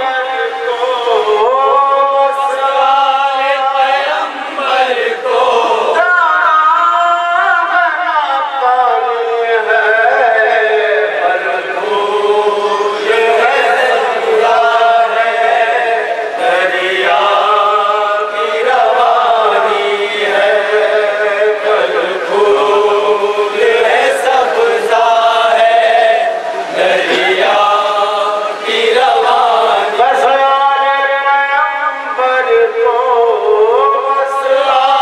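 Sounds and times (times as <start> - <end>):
man chanting a lament: 0.0 - 35.0.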